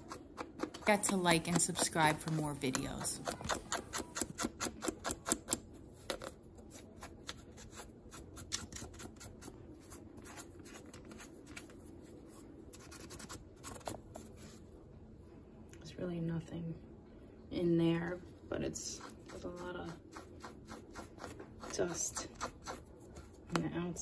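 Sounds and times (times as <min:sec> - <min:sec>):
fingertips scratching filter mesh: 0:18.8 - 0:23.5.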